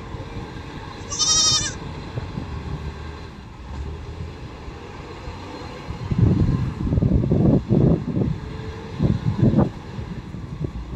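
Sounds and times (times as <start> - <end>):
goat bleating: 1.0 - 1.8.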